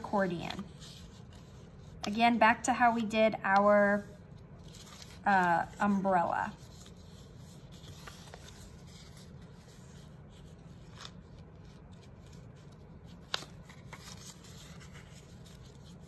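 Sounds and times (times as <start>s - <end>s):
low steady hum: 0.0s - 16.0s
paper creasing and rustling: 0.0s - 16.0s.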